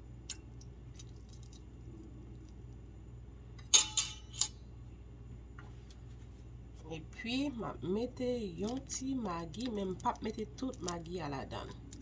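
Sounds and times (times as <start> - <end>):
low steady hum: 0.0 - 12.0
utensils clinking on dishes: 3.7 - 4.6.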